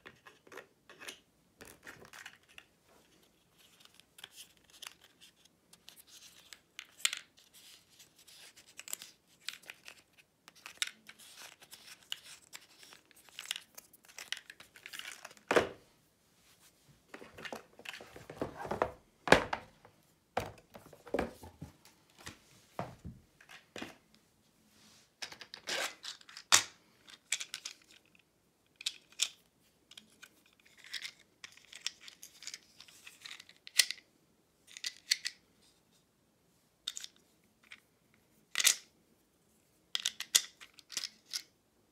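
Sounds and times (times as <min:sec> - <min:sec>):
rustling and crinkling: 0:00.0 - 0:28.2.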